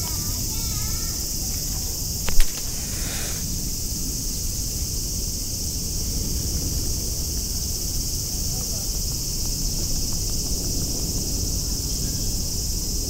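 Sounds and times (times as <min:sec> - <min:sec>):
cicadas droning: 0:00.0 - 0:13.0
short sharp knock: 0:02.3 - 0:03.4.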